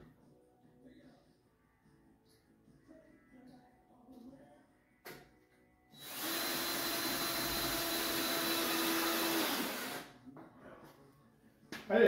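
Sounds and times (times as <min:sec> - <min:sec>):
cordless drill driving screw: 0:06.0 - 0:10.1.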